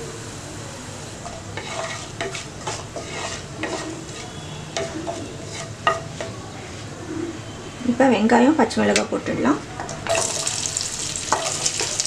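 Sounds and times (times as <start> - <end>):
spices sizzling in hot oil: 0.1 - 6.2, 10.0 - 12.0
wooden spatula scraping pan: 1.3 - 6.3.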